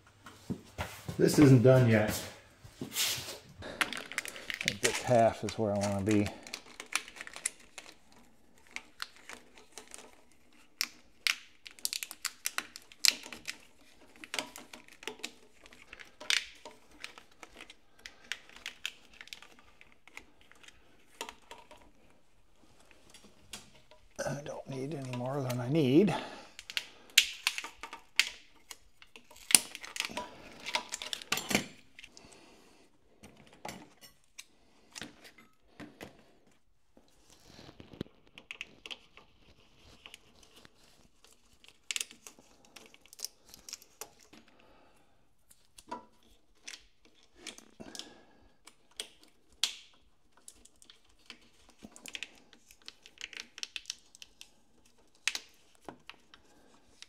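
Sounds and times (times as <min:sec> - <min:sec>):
plastic rustling: 0:00.9 - 0:32.4.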